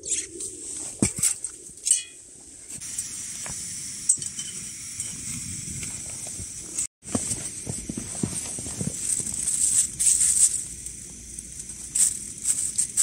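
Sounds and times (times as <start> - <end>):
camping stove burner hissing: 2.5 - 13.0
metal cooking gear clinking: 4.1 - 5.2.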